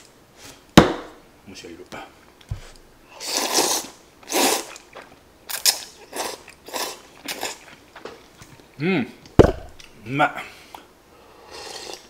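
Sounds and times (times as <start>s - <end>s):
person slurping noodles: 3.2s - 5.1s, 5.8s - 7.7s, 11.4s - 12.0s.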